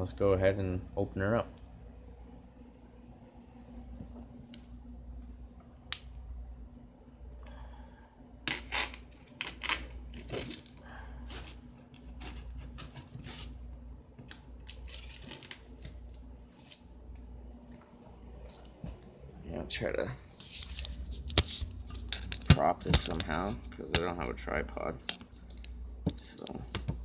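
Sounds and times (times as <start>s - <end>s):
cardboard and packing tape tearing: 8.5s - 10.7s.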